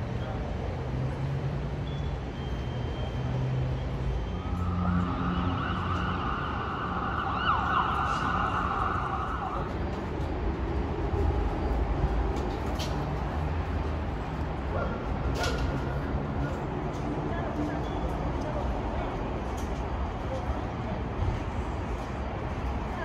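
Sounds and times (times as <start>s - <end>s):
low rumble of vehicle engines: 0.0s - 23.0s
emergency vehicle siren: 2.5s - 10.0s.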